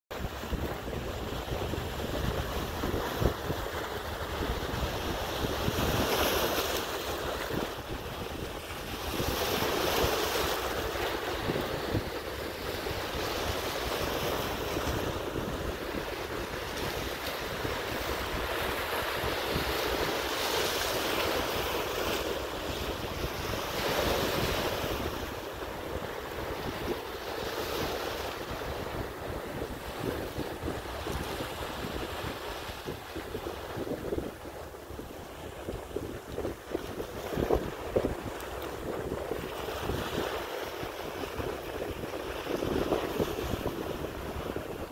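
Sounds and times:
wind buffeting microphone: 0.1 - 44.9.

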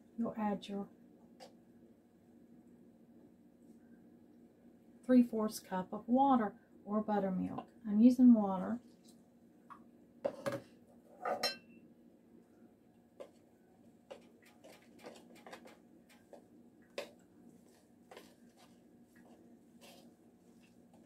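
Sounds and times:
utensil stirring dough in bowl: 13.1 - 21.0.

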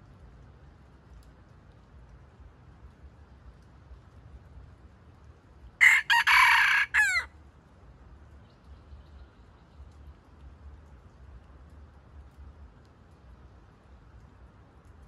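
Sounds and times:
rooster crowing: 5.8 - 7.3.

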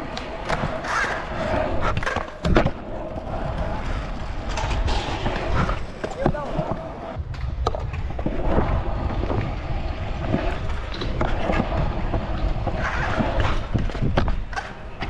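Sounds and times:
scooter wheels rolling on concrete: 0.0 - 15.0
wind noise on microphone: 3.2 - 14.7.

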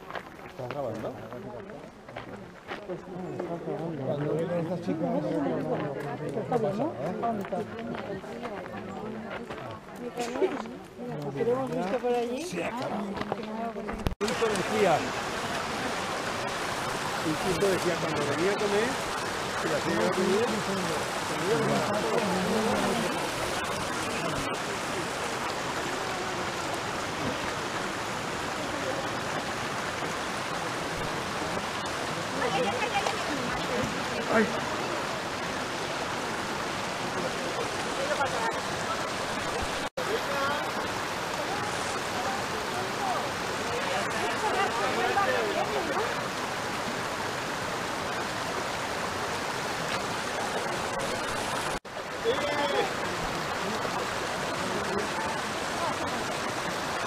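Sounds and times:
stream running over rocks: 0.0 - 57.0.

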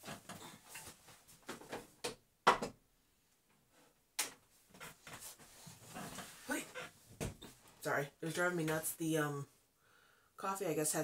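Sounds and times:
objects knocking and clattering: 0.0 - 2.8.

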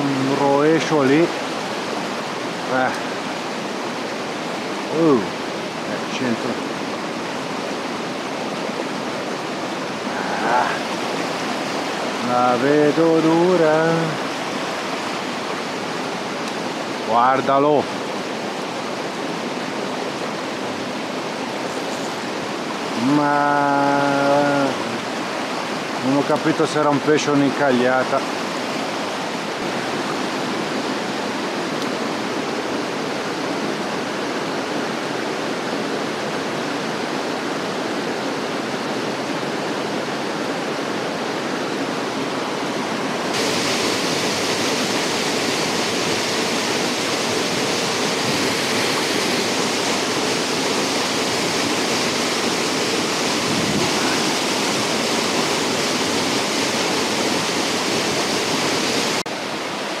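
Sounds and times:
stream tumbling over rocks: 0.0 - 60.0
waterfall pouring into a pool: 43.3 - 59.2.

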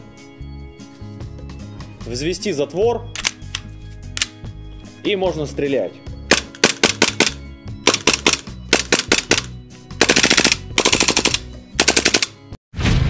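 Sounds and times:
airsoft pistol shots: 6.3 - 12.3.

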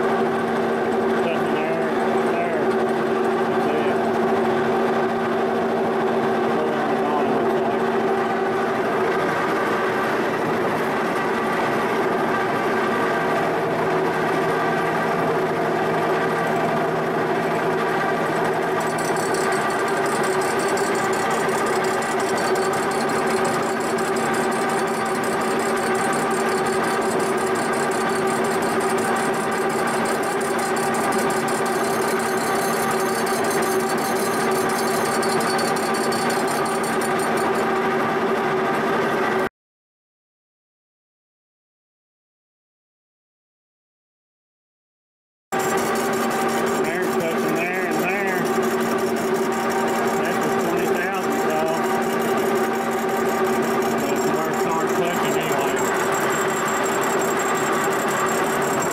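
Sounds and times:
milling machine whining: 0.0 - 39.4, 45.6 - 58.9
high-pitched cutter chatter: 1.2 - 2.8, 18.6 - 37.7, 45.6 - 58.9.

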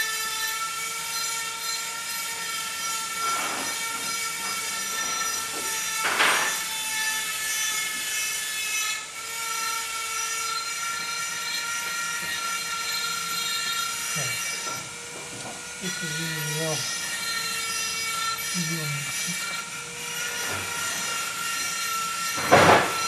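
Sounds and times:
steady background hum: 8.4 - 23.0.

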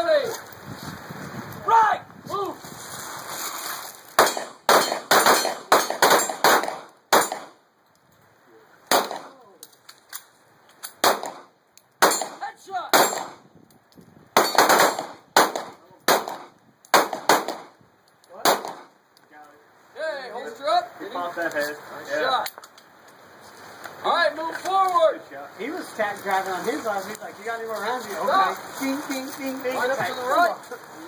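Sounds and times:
pistol shots: 4.2 - 7.6, 8.9 - 9.4, 11.0 - 13.4, 14.4 - 17.7, 18.4 - 18.9.

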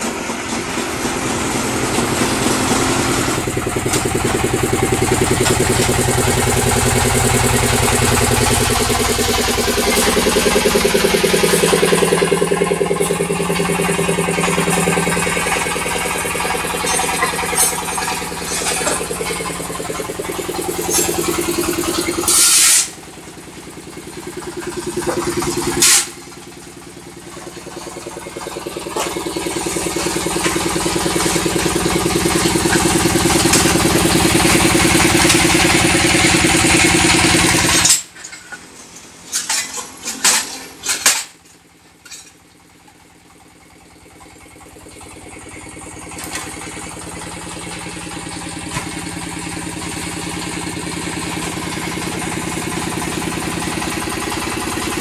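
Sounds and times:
small engine running: 0.0 - 38.6, 42.0 - 55.0
metal clanks: 9.8 - 23.0.

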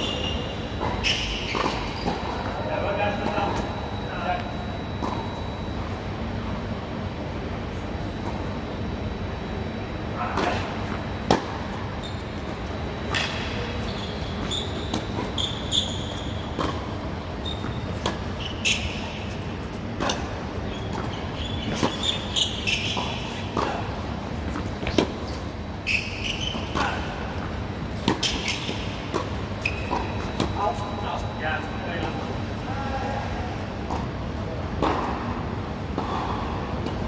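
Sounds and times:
shoes squeaking on court: 0.0 - 5.9, 10.4 - 32.3
tennis ball bouncing: 0.8 - 2.6, 14.4 - 25.4, 26.3 - 30.6, 34.8 - 35.3
racket hitting tennis ball: 28.0 - 30.6.

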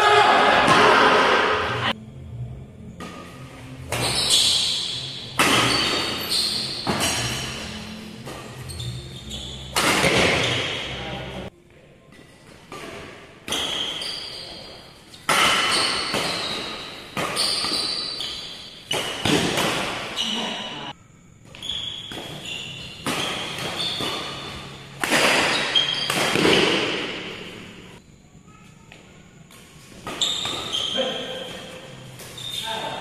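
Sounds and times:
rackets striking shuttlecock: 3.9 - 8.6, 9.7 - 11.0, 15.2 - 20.2, 21.6 - 27.9
shoes squeaking on court: 3.9 - 11.0, 12.2 - 20.8, 21.4 - 33.0.

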